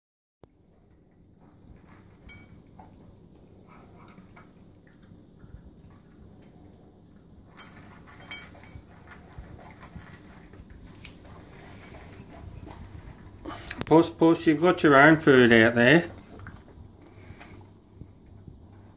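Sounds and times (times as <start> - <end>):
animals chewing from metal bowl: 0.5 - 18.9.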